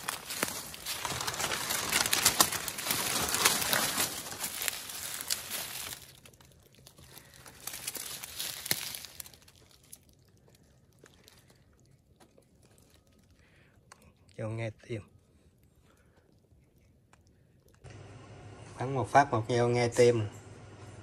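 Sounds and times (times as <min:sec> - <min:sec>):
footsteps in dry leaves: 0:00.0 - 0:10.3.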